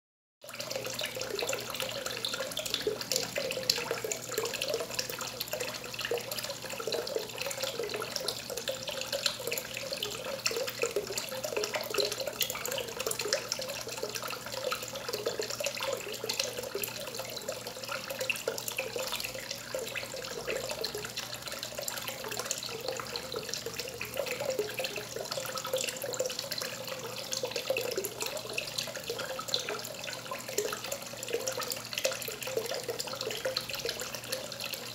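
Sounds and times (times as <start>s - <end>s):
water stream splashing into pond: 0.4s - 34.9s.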